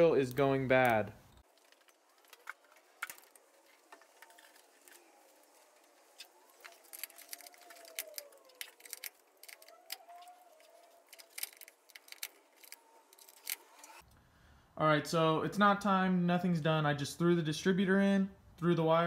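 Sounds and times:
faint clicks and rattles: 1.3s - 14.0s.

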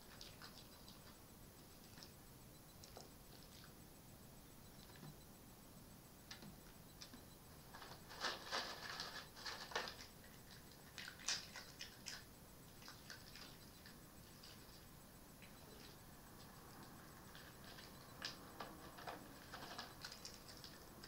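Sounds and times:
fox crunching food: 0.0s - 2.1s, 7.8s - 16.0s, 16.8s - 21.0s.

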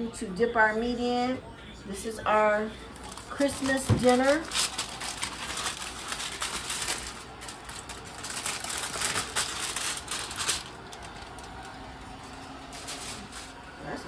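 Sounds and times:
aluminum foil crinkling: 2.8s - 14.0s.

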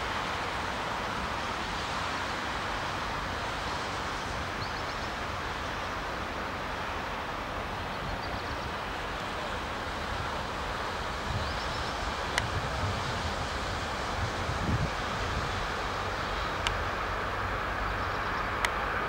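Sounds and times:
outdoor hiss: 0.0s - 19.0s
wind buffeting microphone: 11.1s - 17.0s.

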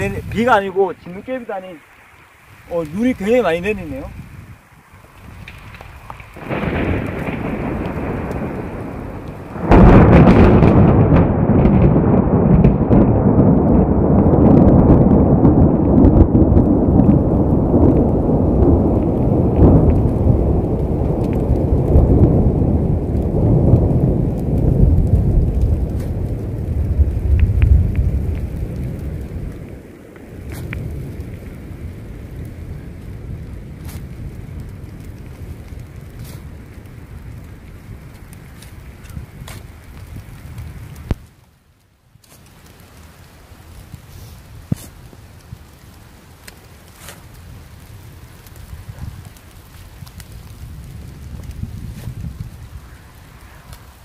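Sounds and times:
thunder rumbling: 0.0s - 41.4s, 42.5s - 54.0s
loud thunder clap: 5.3s - 38.5s.

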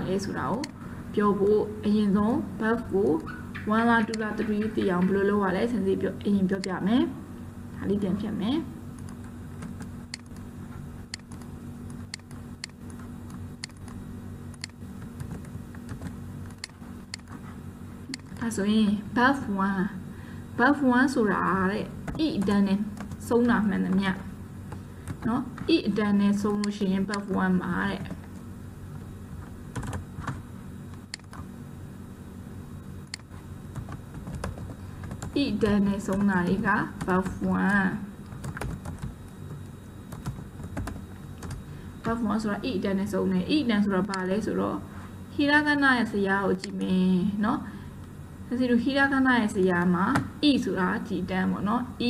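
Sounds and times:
low hum: 0.0s - 52.0s
computer keyboard keystrokes: 9.0s - 10.5s, 11.1s - 17.4s, 22.0s - 24.0s, 29.7s - 30.4s, 31.0s - 31.4s, 33.0s - 36.4s, 37.0s - 39.1s, 40.1s - 41.6s
mouse and keyboard clicks: 11.1s - 17.4s.

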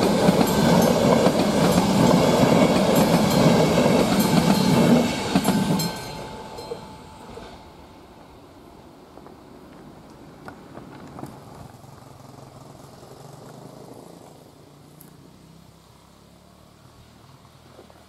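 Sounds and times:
distant vehicle engine hum: 9.2s - 18.0s.

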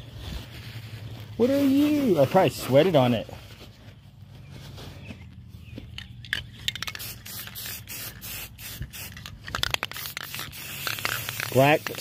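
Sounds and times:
aerosol spray can hissing: 6.8s - 12.0s.

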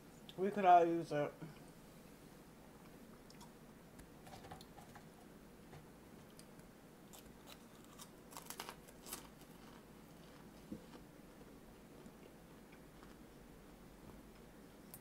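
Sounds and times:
crunchy chewing of food: 6.3s - 15.0s.

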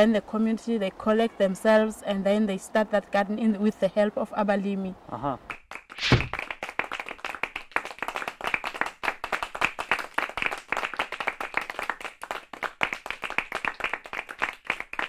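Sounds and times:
group of people clapping: 5.5s - 15.0s.

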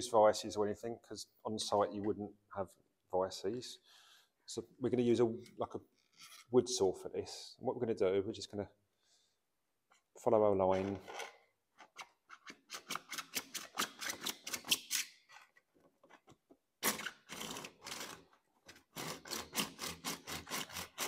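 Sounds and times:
hand saw cutting plastic pipe: 16.8s - 21.0s.

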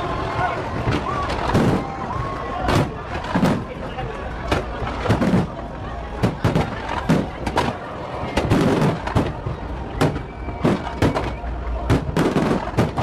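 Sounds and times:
fireworks bangs: 0.8s - 2.0s, 2.6s - 3.8s, 4.5s - 5.6s, 6.2s - 13.0s.

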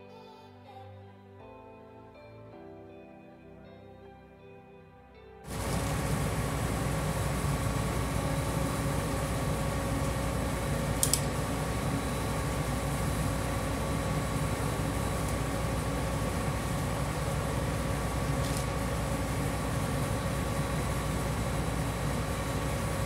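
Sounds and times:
drilling rig engine rumble: 5.5s - 23.0s
sharp click: 11.0s - 11.3s.

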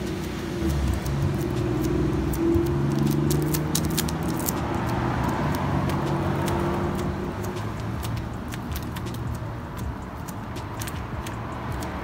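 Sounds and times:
wax paper crackling and rustling: 0.0s - 6.8s.

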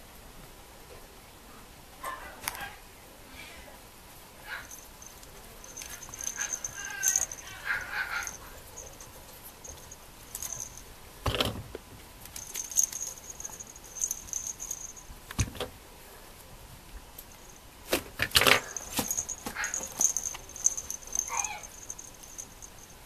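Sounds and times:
faint high jingle: 4.6s - 11.0s, 12.4s - 15.2s, 17.3s - 17.8s, 18.6s - 23.0s
toy knocks and rustles: 4.7s - 15.7s, 17.4s - 23.0s.

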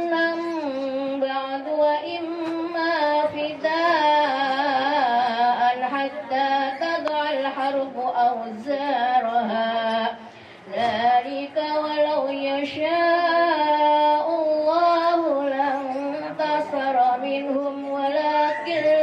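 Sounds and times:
woman chanting into a microphone: 0.0s - 19.0s.

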